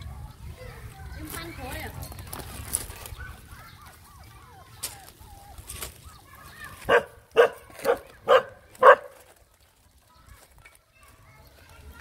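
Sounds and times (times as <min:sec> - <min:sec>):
dog barking: 0:06.9 - 0:09.2.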